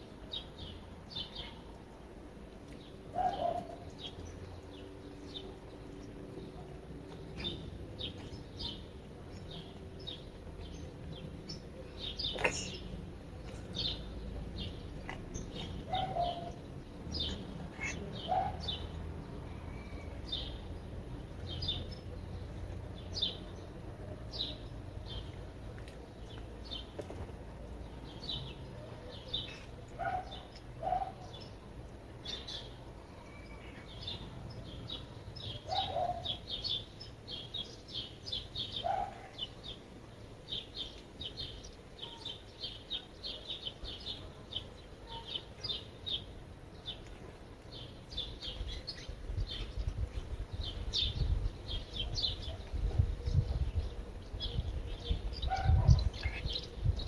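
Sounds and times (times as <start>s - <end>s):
wild birds chirping: 0.0s - 57.0s.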